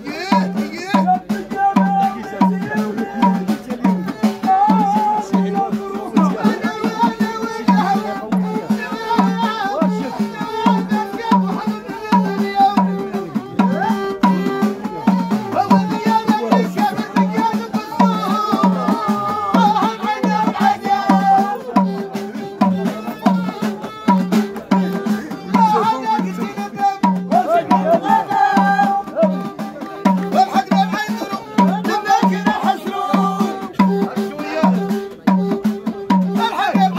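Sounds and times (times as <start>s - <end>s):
hand drums beating: 0.0s - 36.9s.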